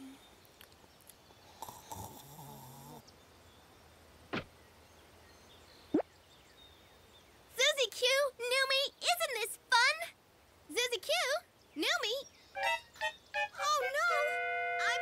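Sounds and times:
cartoon character snoring: 1.6s - 3.0s.

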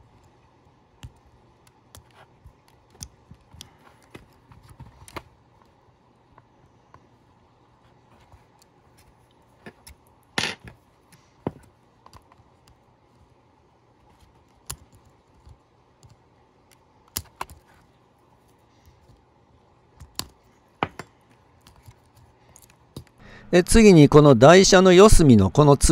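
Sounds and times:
tweezers clicking on plastic: 1.0s - 4.2s, 14.3s - 17.7s, 20.0s - 20.4s.

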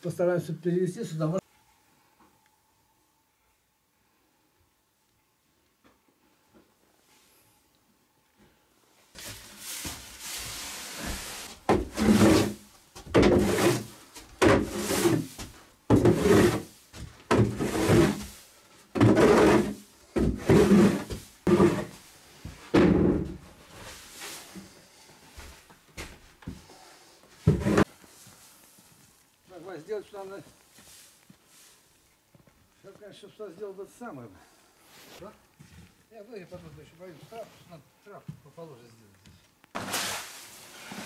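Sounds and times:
scraping thudding strokes on wood floor: 9.2s - 24.7s, 27.4s - 28.6s, 39.8s - 41.0s.

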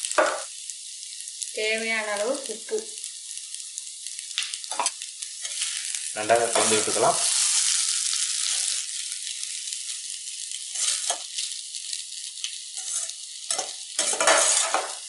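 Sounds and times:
rice sizzling in oil: 0.0s - 15.0s
spatula scraping pan: 4.7s - 7.7s, 10.7s - 11.3s, 12.8s - 15.0s.

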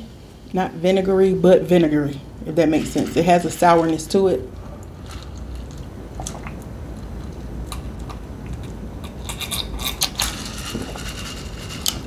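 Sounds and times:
sipping and swallowing drink: 4.6s - 8.8s.

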